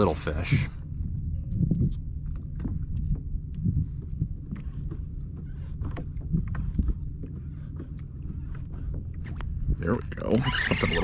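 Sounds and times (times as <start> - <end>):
wind on the microphone: 0.0 - 7.7
small waves lapping against a hull: 0.0 - 11.0.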